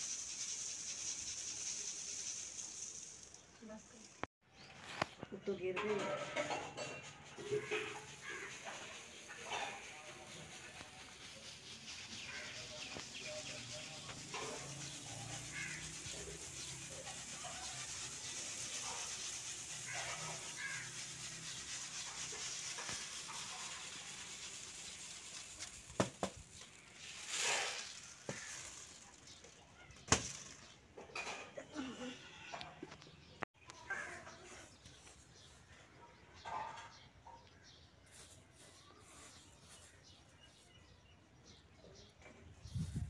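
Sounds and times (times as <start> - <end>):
grain pouring onto cloth: 0.0 - 4.2, 7.6 - 30.6.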